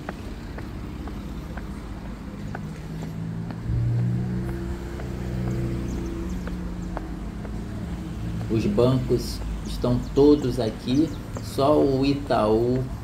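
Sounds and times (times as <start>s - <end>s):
car engine passing by: 0.0s - 9.6s
street rumble: 0.0s - 13.0s.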